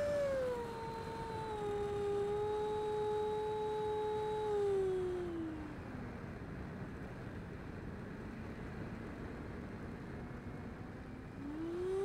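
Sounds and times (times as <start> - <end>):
electric ducted fan whining: 0.0 - 7.3, 10.7 - 12.0.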